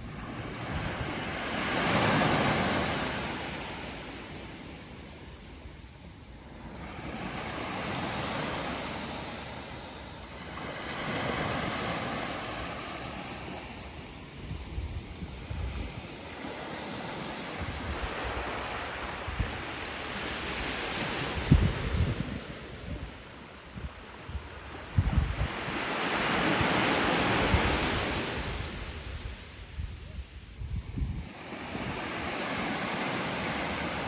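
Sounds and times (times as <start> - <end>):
waves washing on beach: 0.0 - 5.8, 6.4 - 34.0
wind buffeting microphone: 14.4 - 16.2, 21.1 - 23.1, 23.7 - 32.4.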